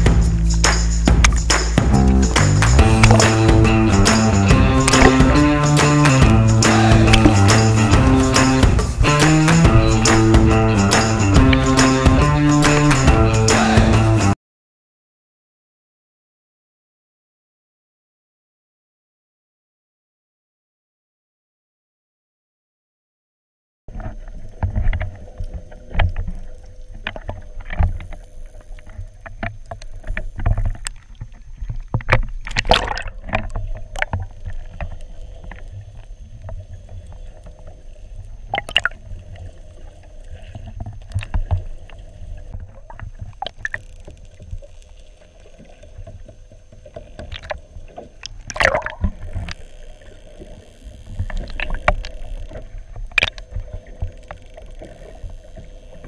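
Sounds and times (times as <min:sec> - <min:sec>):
underwater rumble of moving water: 0:00.0 - 0:11.8, 0:23.9 - 0:56.0
knocks or splashes: 0:00.0 - 0:12.2, 0:32.0 - 0:34.3, 0:38.5 - 0:39.0, 0:48.2 - 0:49.6
faint steady hum: 0:23.9 - 0:56.0
porpoise echolocation clicks: 0:24.0 - 0:56.0.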